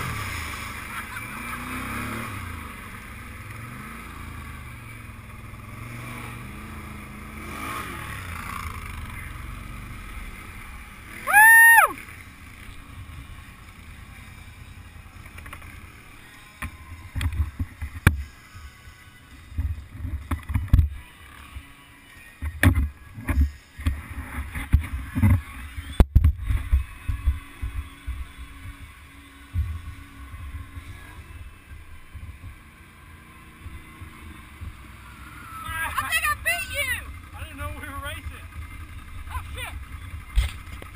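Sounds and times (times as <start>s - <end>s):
quad bike engine running: 0.0s - 21.8s, 22.4s - 40.9s.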